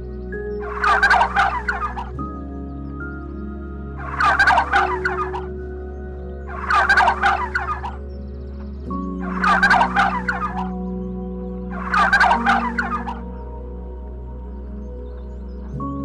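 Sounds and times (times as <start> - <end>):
gobbling bird calls: 0.7 - 2.1, 4.0 - 5.5, 6.5 - 8.0, 9.3 - 10.7, 11.8 - 13.2.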